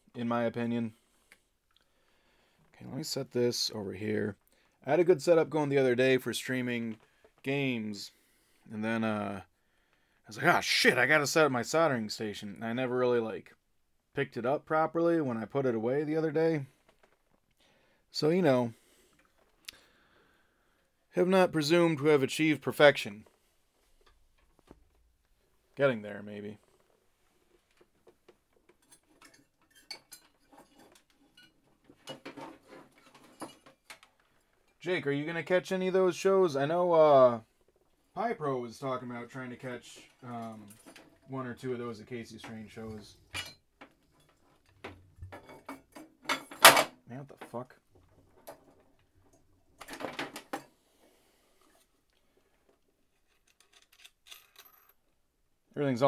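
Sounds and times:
small metal objects clinking: 53.2s - 55.0s.

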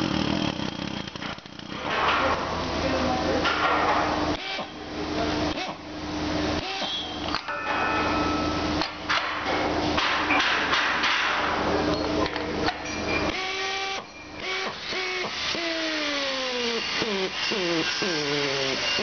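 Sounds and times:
pneumatic wrench motor whine: 0.0s - 1.8s, 4.3s - 4.8s, 6.6s - 7.4s, 13.2s - 19.0s.

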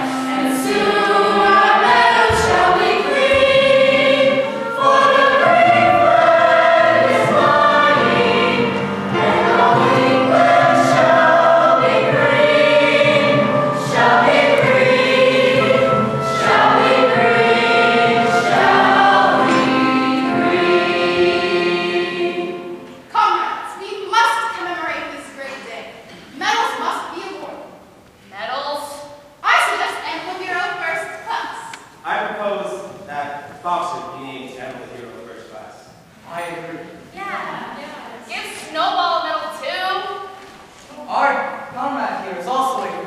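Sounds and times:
group singing in chorus: 0.0s - 23.0s.

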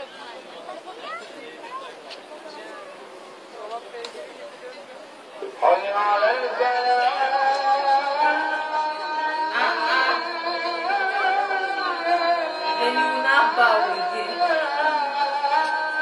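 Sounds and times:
man chanting call to prayer: 5.5s - 16.0s.

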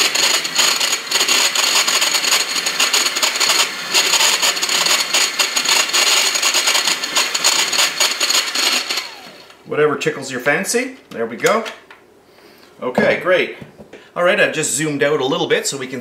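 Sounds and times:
electric hand mixer whine: 0.0s - 9.6s.

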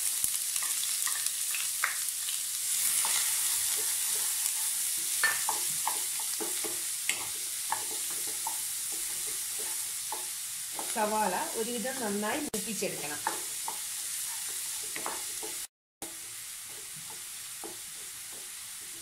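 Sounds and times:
onions sizzling in oil: 0.0s - 19.0s
wooden spatula scraping a pan: 2.7s - 11.4s, 12.9s - 19.0s.

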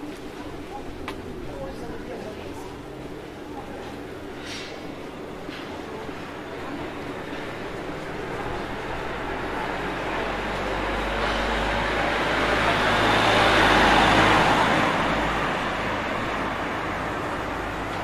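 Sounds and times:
motor vehicle passing: 7.6s - 17.9s.

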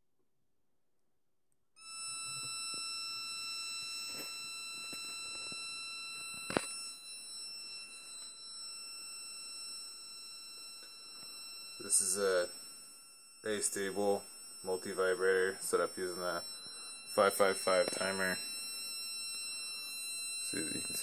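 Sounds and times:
high-pitched speaker tone: 11.8s - 12.6s, 13.4s - 18.5s, 20.5s - 21.0s.

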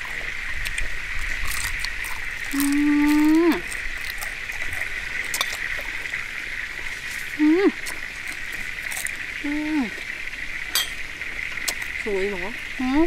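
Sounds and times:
crunching while eating: 0.0s - 12.1s.

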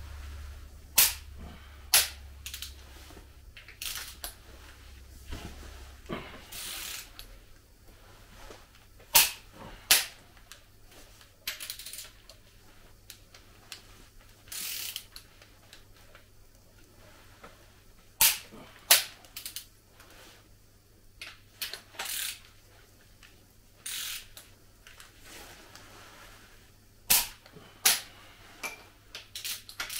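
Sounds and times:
wrench ratcheting: 3.7s - 4.2s, 6.6s - 7.3s, 11.5s - 12.2s, 14.5s - 15.2s, 19.4s - 19.7s, 21.6s - 22.5s, 23.8s - 24.4s, 29.4s - 29.9s
torque wrench clicks: 11.5s - 12.1s, 14.5s - 15.2s, 18.2s - 19.7s, 21.6s - 22.5s, 23.8s - 24.5s.

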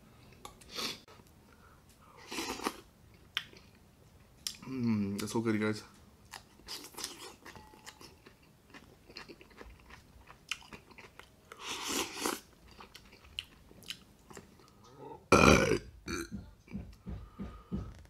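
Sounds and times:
chewing and crunching: 6.3s - 14.9s.

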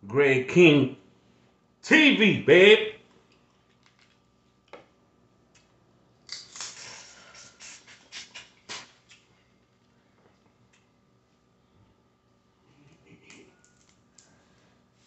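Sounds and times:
mouth eating crackles and smacks: 3.1s - 4.7s, 5.5s - 11.0s.

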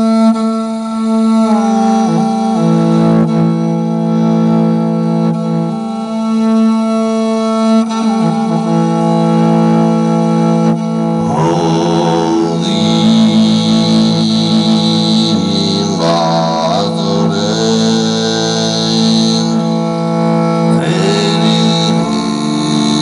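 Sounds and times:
bowed fiddle sustained notes: 0.0s - 23.0s
steady low drone: 10.9s - 23.0s.

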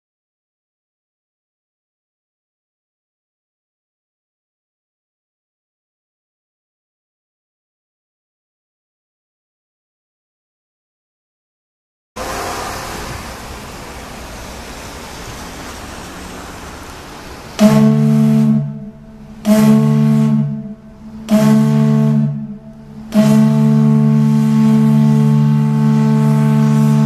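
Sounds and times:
deep air horn blasts: 12.2s - 14.0s, 17.4s - 27.0s
steady outdoor hiss: 12.2s - 27.0s.

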